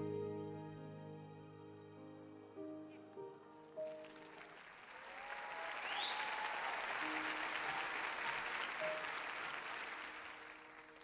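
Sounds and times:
soft background music: 0:00.0 - 0:04.6
audience applauding and cheering: 0:03.7 - 0:11.0.

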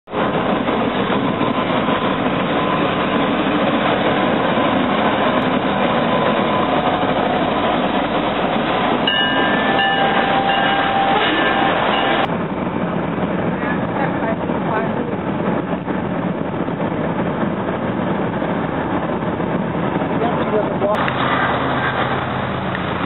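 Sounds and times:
freight train wheels on rails: 0:00.1 - 0:23.0
high wheel squeals: 0:09.0 - 0:12.3.

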